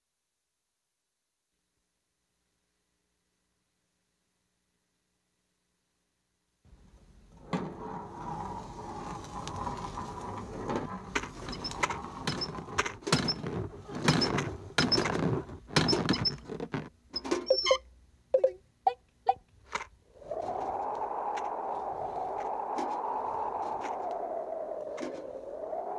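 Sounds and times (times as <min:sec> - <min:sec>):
short squeaky chirps: 0:11.5 - 0:11.8, 0:15.9 - 0:16.5, 0:17.2 - 0:17.9.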